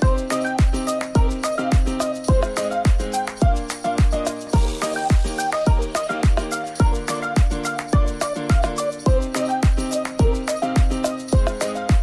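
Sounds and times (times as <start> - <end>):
music with steady beat: 0.0 - 12.0.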